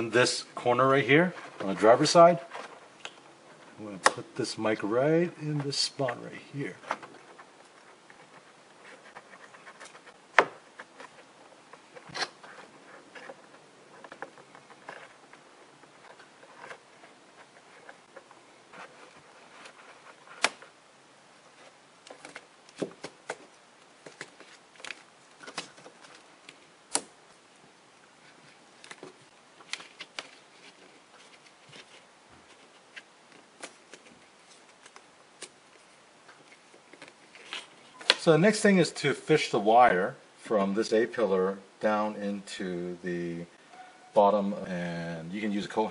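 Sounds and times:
microphone handling clicks and rustles: 5.4s - 20.7s.

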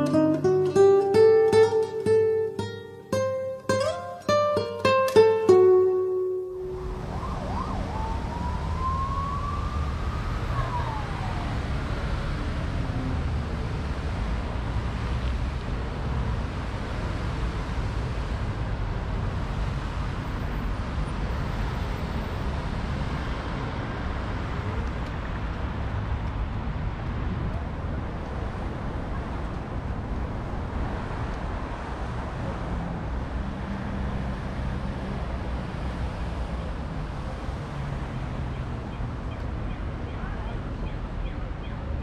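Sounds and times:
road traffic rumble: 0.0s - 42.0s.

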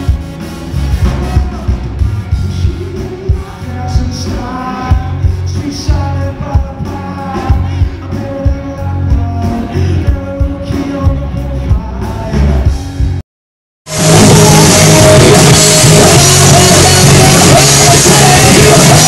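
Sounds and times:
bass guitar: 0.0s - 13.2s, 13.9s - 19.0s
drum kit beat: 0.0s - 13.2s, 13.9s - 19.0s
person singing: 1.1s - 12.8s, 13.9s - 19.0s
electric guitars: 13.9s - 19.0s.

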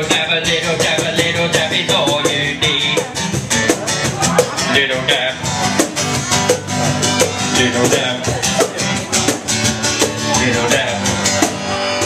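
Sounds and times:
guitar: 0.0s - 12.0s
percussion beat: 0.0s - 12.0s.

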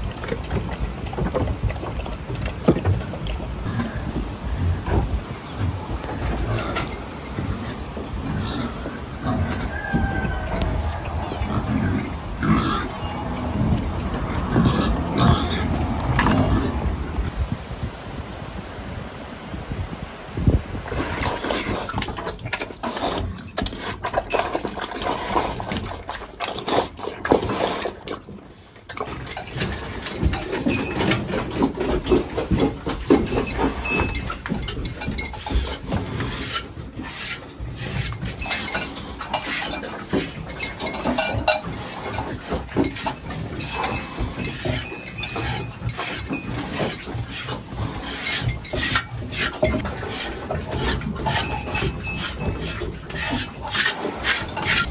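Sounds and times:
pigs eating at a trough: 0.0s - 17.3s, 20.7s - 54.9s
cow in a stall: 0.0s - 54.9s
knocks and clatters: 28.9s - 36.7s, 37.8s - 54.9s.

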